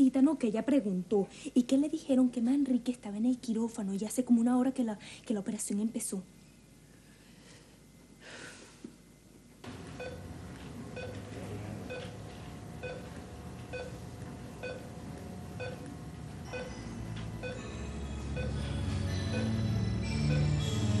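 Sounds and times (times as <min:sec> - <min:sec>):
low hum: 0:09.6 - 0:21.0
heart monitor beeping: 0:09.7 - 0:21.0.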